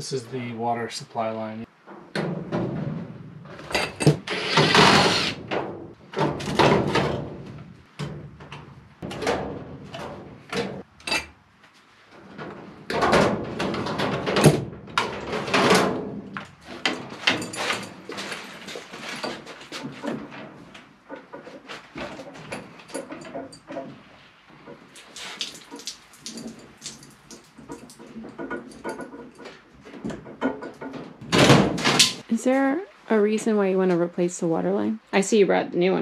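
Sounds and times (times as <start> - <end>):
plastic and sheet metal knocking: 27.7 - 32.0.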